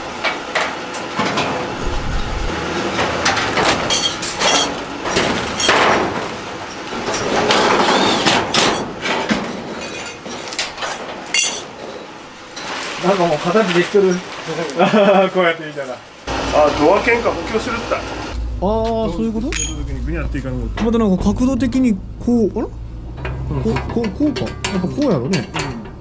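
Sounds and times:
metal knocks and clanks: 0:00.2 - 0:12.8, 0:23.0 - 0:26.0
sheet steel scraping and rattling: 0:00.2 - 0:14.7, 0:22.8 - 0:26.0.

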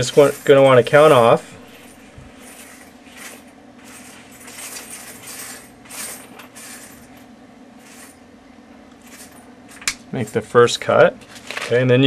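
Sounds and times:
soft metal scrapes and clinks: 0:00.0 - 0:08.2
steady low hum: 0:00.0 - 0:12.0.

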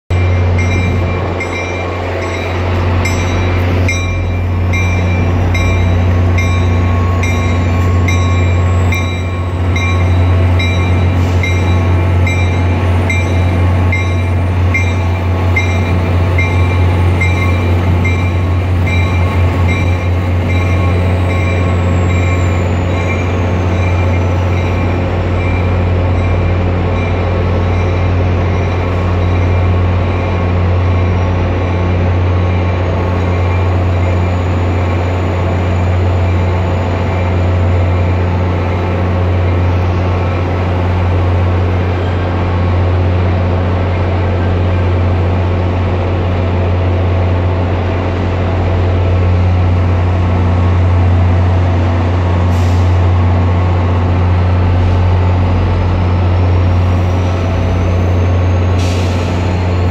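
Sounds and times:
diesel locomotive drone: 0:00.0 - 0:59.9
locomotive bell ringing: 0:00.1 - 0:42.3.

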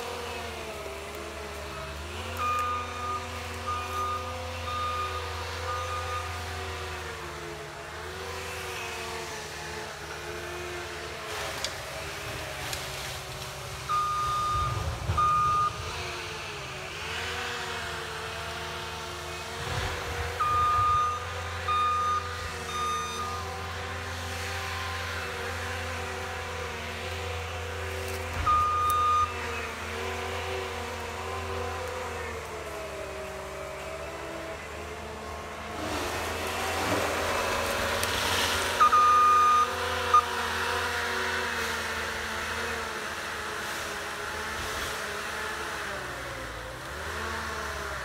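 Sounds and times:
track loader running: 0:00.0 - 0:48.0
reversing alarm beeps: 0:01.8 - 0:06.4, 0:13.9 - 0:15.9, 0:20.3 - 0:23.5, 0:28.4 - 0:29.4, 0:38.7 - 0:40.3.

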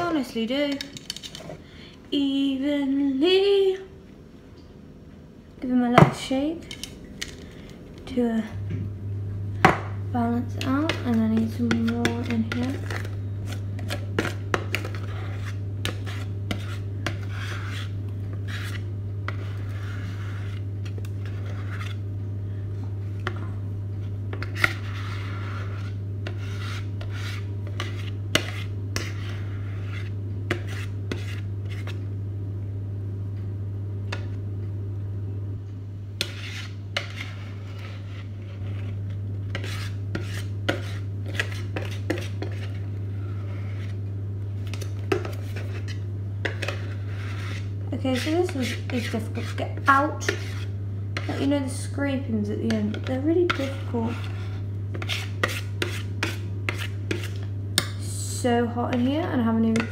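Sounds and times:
steady low hum: 0:00.0 - 0:59.9
utensil scraping batter from bowl: 0:10.4 - 0:22.1, 0:24.3 - 0:32.1, 0:36.2 - 0:44.0, 0:44.6 - 0:59.9.

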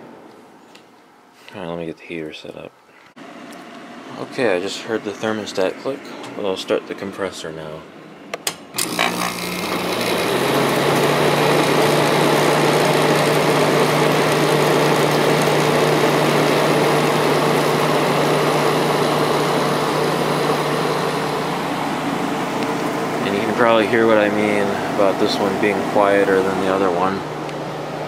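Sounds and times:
fan airflow: 0:00.0 - 0:08.9, 0:16.4 - 0:28.0
air conditioner compressor humming: 0:00.0 - 0:28.0.

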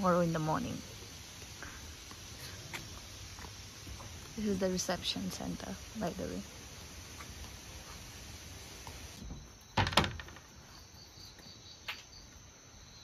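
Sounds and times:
night insects chirring: 0:00.0 - 0:13.0
clatter of quick knocks: 0:09.8 - 0:10.5.

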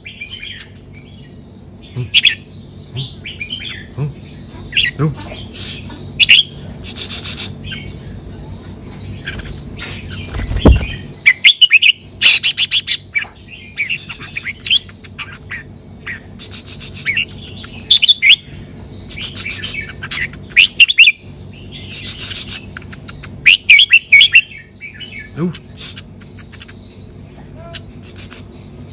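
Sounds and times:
bulbul singing: 0:00.0 - 0:28.9.

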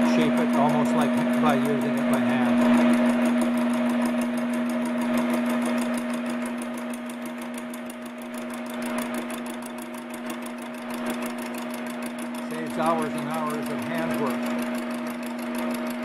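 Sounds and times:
fast ticking from drive: 0:00.0 - 0:16.0
lathe machine hum: 0:00.0 - 0:16.0.

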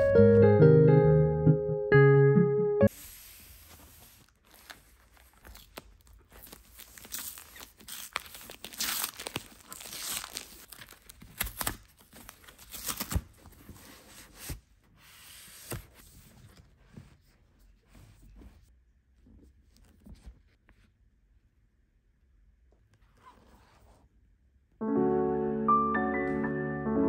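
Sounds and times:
book being handled: 0:02.9 - 0:21.0
cardboard ripping and crinkling: 0:03.0 - 0:14.6.

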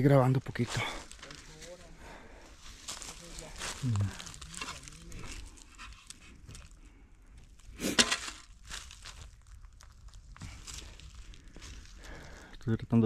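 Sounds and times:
rustling and crunching: 0:00.5 - 0:12.5
person breathing hard: 0:02.0 - 0:02.8, 0:10.4 - 0:12.6.

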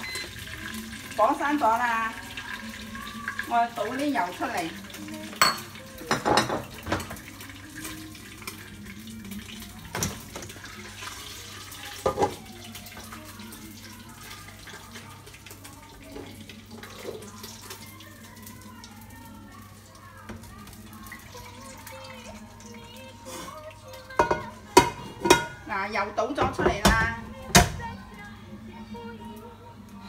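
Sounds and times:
metal cookware clattering: 0:24.2 - 0:27.8.

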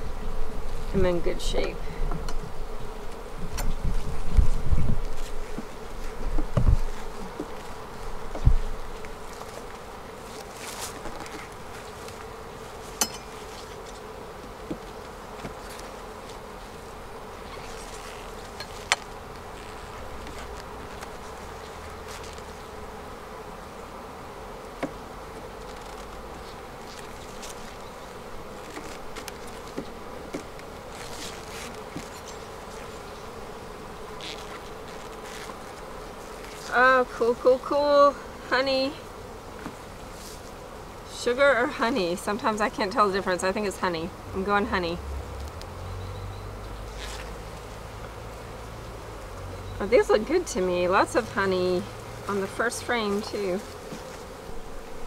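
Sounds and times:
honeybees buzzing: 0:00.0 - 0:55.0
hive tool knocking on frames: 0:05.5 - 0:09.7, 0:12.0 - 0:15.6, 0:24.7 - 0:25.7.

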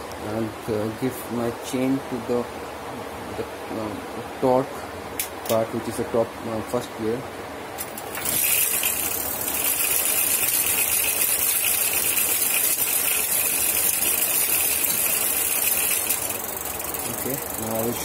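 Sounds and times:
electric hub motor whine: 0:07.8 - 0:18.0.

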